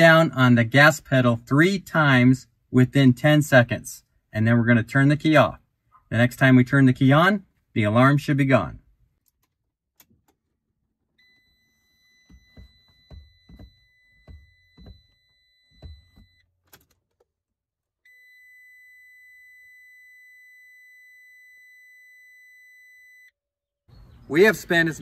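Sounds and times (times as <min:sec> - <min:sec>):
high electronic tone: 0:11.2 - 0:16.4
gas pedal thumps: 0:12.2 - 0:16.8.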